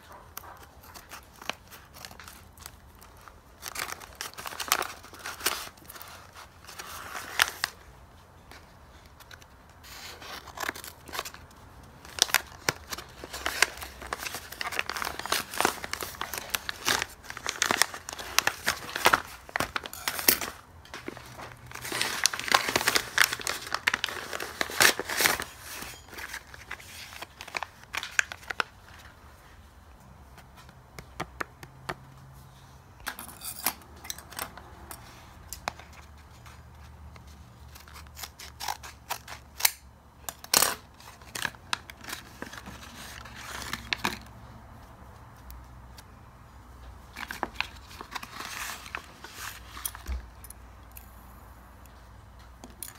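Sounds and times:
paper crinkling and tearing: 0.1 - 7.8, 8.6 - 29.2, 35.6 - 39.8, 40.5 - 44.3, 47.1 - 50.0
scissors snipping paper: 37.7 - 44.0.

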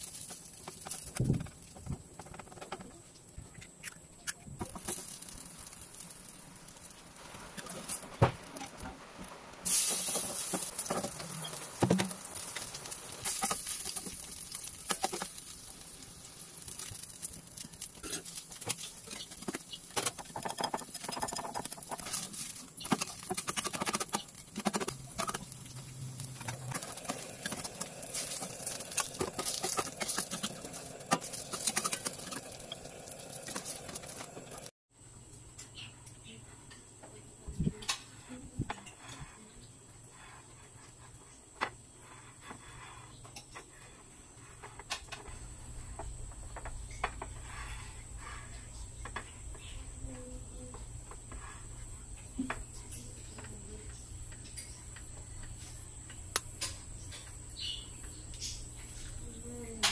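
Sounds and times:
oil sizzling in a frying pan: 4.7 - 20.4, 25.0 - 34.7.

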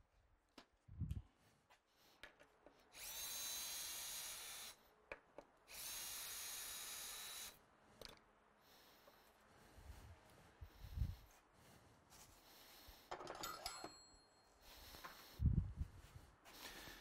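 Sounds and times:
cordless drill whining: 2.9 - 4.8, 5.7 - 7.6
drill clicking: 3.0 - 4.8, 5.7 - 7.6.

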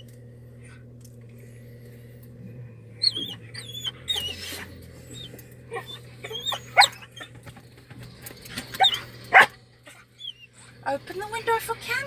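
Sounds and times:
dog whining: 2.9 - 10.8.

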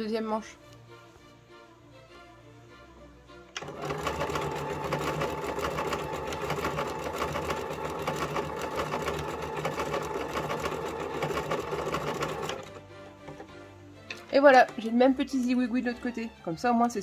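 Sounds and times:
sewing machine running: 3.6 - 12.8.

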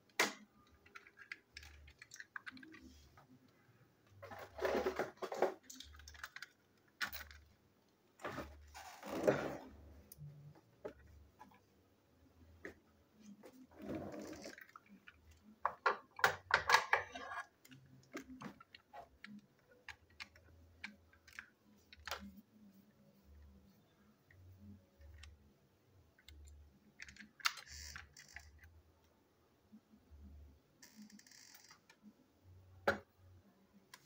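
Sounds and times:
plastic toy parts clicking: 0.1 - 3.0, 5.5 - 7.5, 14.3 - 22.3, 26.2 - 28.7.

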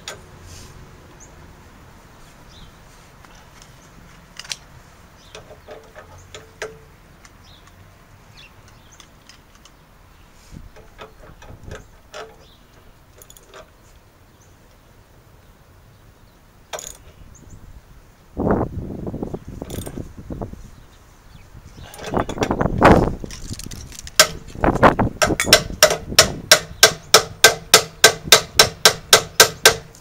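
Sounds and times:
metal hardware clinking: 10.7 - 13.7, 21.8 - 27.6
metallic clatter: 21.8 - 26.3.

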